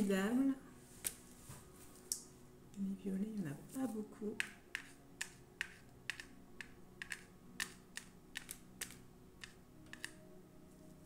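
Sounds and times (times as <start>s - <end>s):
rhinestones clicking on plastic: 4.4s - 10.2s.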